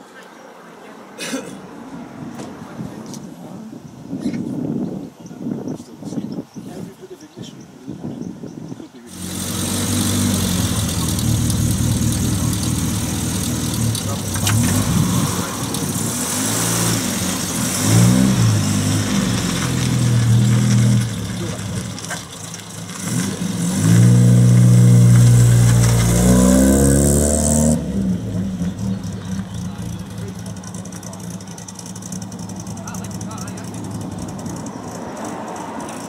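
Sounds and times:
car engine idling and revving: 0:09.1 - 0:36.0.

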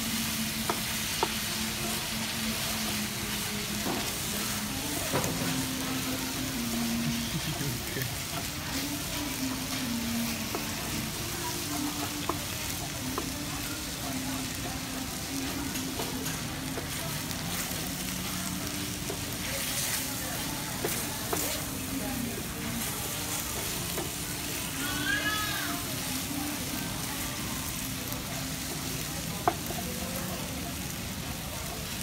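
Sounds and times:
food sizzling in a pan: 0:00.0 - 0:32.0.

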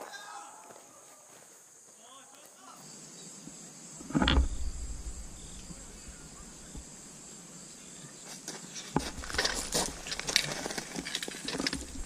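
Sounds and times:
insects chirring: 0:00.0 - 0:12.0
loud thump: 0:04.1 - 0:06.9.

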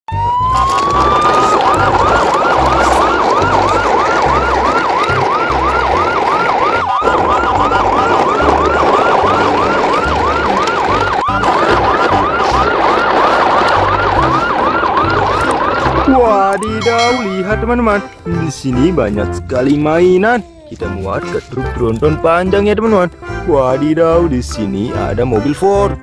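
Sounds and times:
siren wailing: 0:00.1 - 0:17.7.

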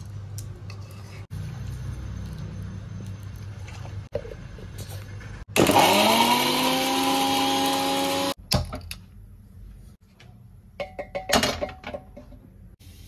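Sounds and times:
mixer grinder motor whine: 0:05.6 - 0:08.4.

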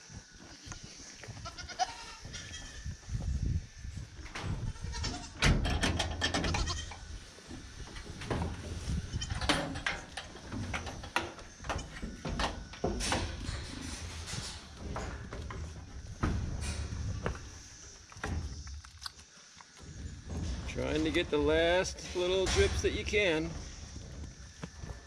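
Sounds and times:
goats bleating: 0:01.4 - 0:02.8, 0:04.7 - 0:05.4
metal barn door knocks and rattles: 0:04.9 - 0:06.8, 0:09.2 - 0:17.2.

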